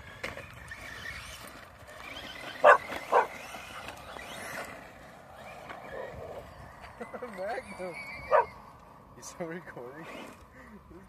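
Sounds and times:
dog barking: 2.6 - 3.3, 8.3 - 8.5.

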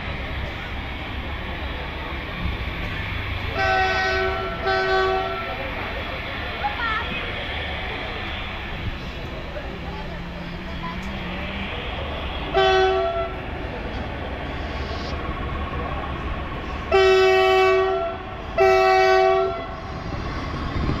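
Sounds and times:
moving train rumble: 0.0 - 21.0
train horn blasts: 3.5 - 5.5, 12.5 - 13.4, 16.9 - 19.8.

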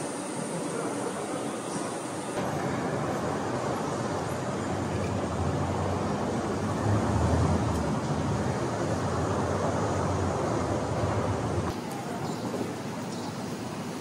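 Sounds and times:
vehicles running rumble: 2.4 - 11.8.

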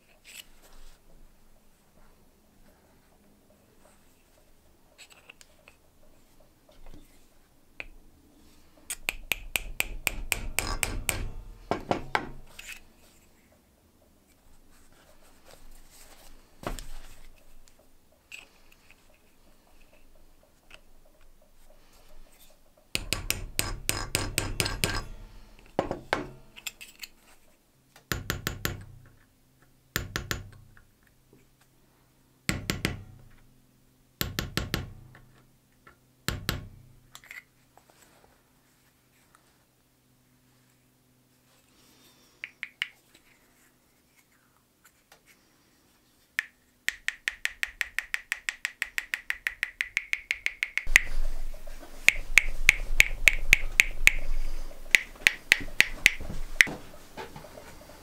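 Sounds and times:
hammer striking metal tool: 9.0 - 12.5, 23.0 - 26.7.

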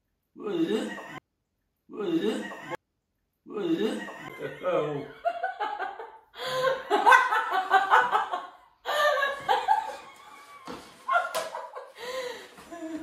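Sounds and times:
woman laughing: 3.7 - 13.0.

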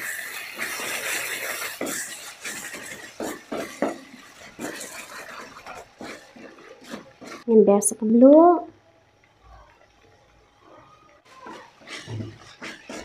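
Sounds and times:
spatula scraping cooking pot: 0.0 - 7.6, 11.3 - 13.0
light sizzle: 0.0 - 13.0.

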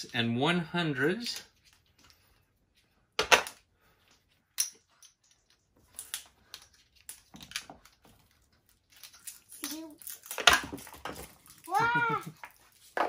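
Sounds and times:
clay chips clacking together: 3.2 - 13.0.

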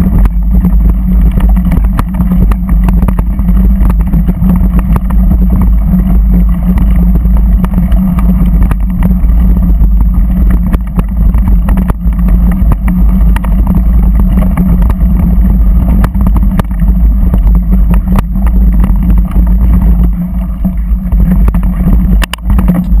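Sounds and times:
off-road vehicle engine: 0.0 - 23.0
wind buffeting microphone: 0.0 - 23.0.

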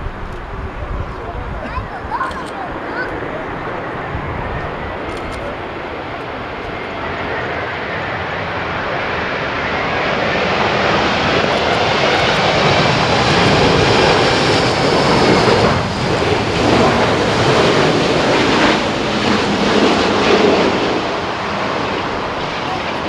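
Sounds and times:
jet engines rushing: 0.0 - 23.0.

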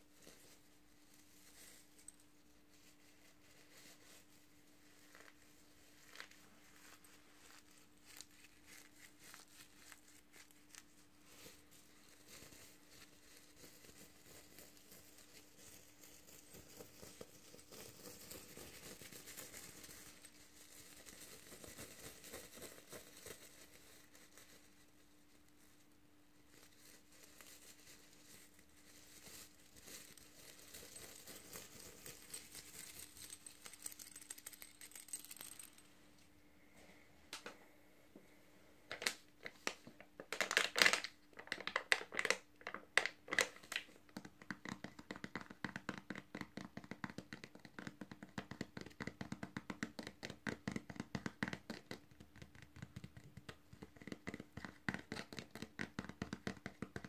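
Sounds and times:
fingernails rustling sequins: 0.0 - 36.2
faint steady hum: 0.0 - 45.7.

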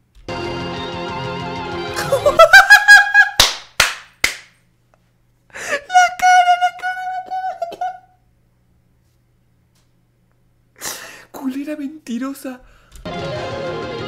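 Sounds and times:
man wailing and laughing: 1.9 - 3.4, 5.6 - 8.2
sharp slaps: 3.4 - 4.6.

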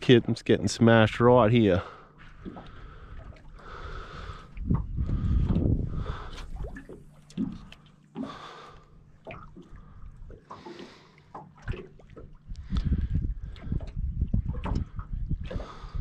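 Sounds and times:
waves slapping against metal hull: 0.0 - 16.0
wind rumble on microphone: 2.8 - 6.8, 12.5 - 16.0.

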